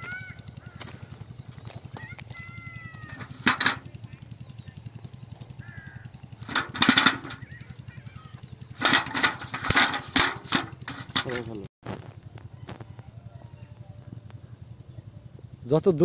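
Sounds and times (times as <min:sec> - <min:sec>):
fish flapping in a bucket: 0:02.6 - 0:08.0, 0:08.6 - 0:11.6.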